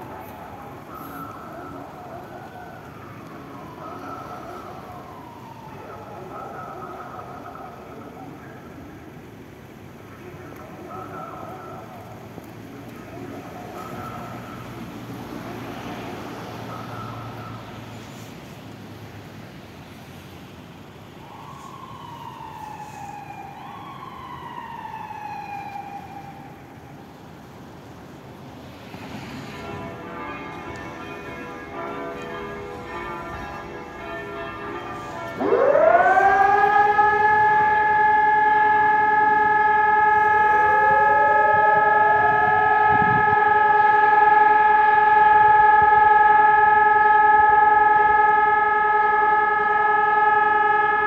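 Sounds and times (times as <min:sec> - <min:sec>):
distant sirens: 0:00.0 - 0:51.0
traffic hum: 0:00.0 - 0:51.0
echoing loudspeaker announcement: 0:03.7 - 0:08.8, 0:10.2 - 0:12.3, 0:29.5 - 0:51.0
electronic siren rising tone: 0:35.3 - 0:51.0.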